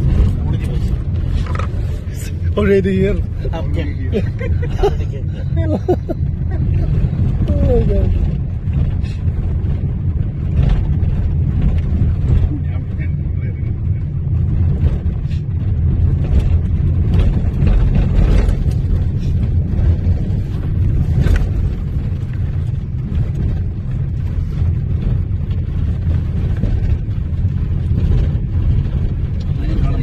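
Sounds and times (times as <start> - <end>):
strong wind buffeting microphone: 0.0 - 30.0.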